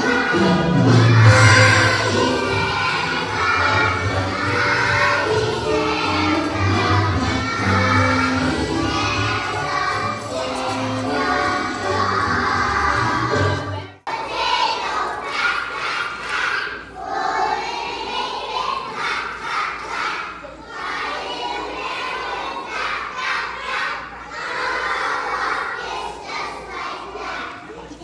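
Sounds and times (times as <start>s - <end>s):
backing music: 0.0s - 14.1s.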